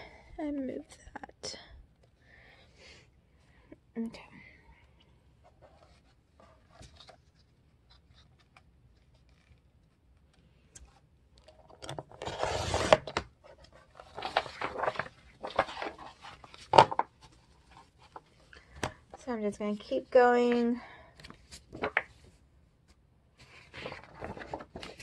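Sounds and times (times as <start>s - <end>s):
pages rustling: 5.4s - 19.1s, 19.8s - 22.4s, 23.4s - 25.0s.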